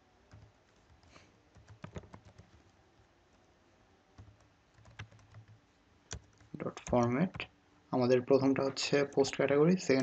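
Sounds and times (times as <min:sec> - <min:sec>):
keyboard typing: 0:00.3 - 0:02.7, 0:04.2 - 0:07.5.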